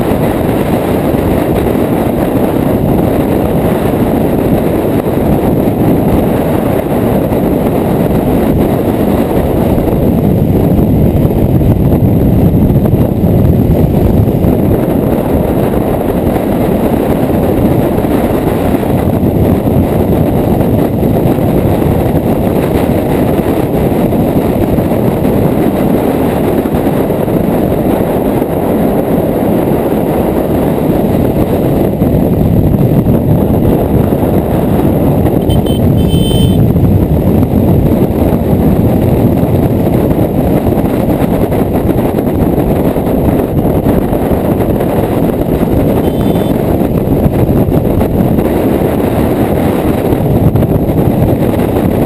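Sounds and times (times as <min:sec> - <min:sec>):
road noise: 0:00.0 - 0:52.0
wind rushing on microphone: 0:00.0 - 0:52.0
motorcycle engine: 0:32.8 - 0:48.0.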